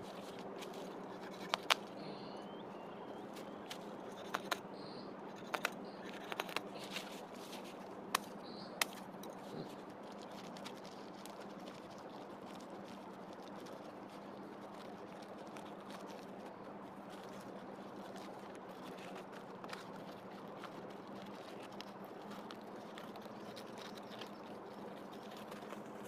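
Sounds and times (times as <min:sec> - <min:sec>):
faint low hum: 0:00.0 - 0:26.0
faint high chirps: 0:01.8 - 0:06.3.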